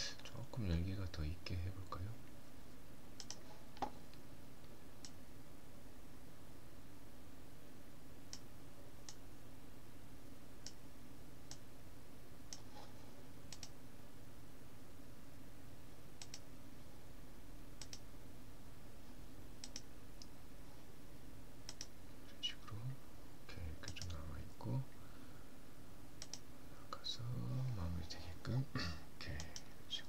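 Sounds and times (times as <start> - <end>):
faint low hum: 0.0 - 30.0
mouse buttons clicking: 3.2 - 3.9, 13.5 - 13.8, 16.2 - 16.5, 17.8 - 18.0, 19.6 - 20.3, 21.7 - 21.9, 26.2 - 26.4.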